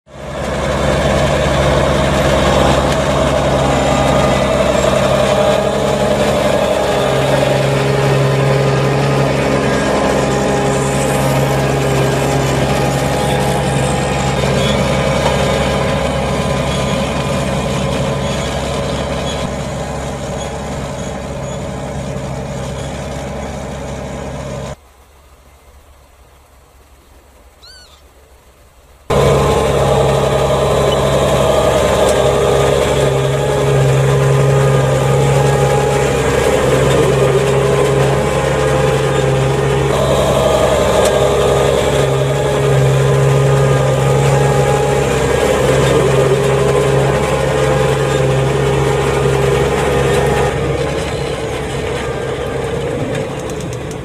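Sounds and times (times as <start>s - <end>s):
tractor engine under load: 0.1s - 27.8s, 28.6s - 54.0s
faint chirp: 27.0s - 28.2s.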